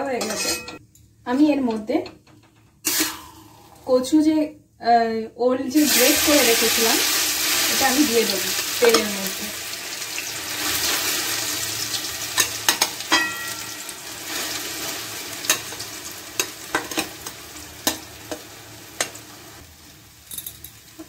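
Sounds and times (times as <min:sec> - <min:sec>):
metal spatula scraping pan: 0:00.0 - 0:00.8
food sizzling in hot oil: 0:05.8 - 0:21.0.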